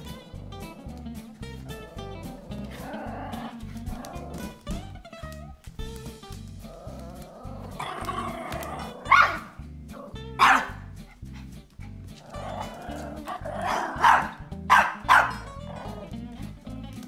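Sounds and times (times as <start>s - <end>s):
background music with steady beat: 0.0s - 17.0s
puppy barking: 1.6s - 4.6s, 6.7s - 16.2s.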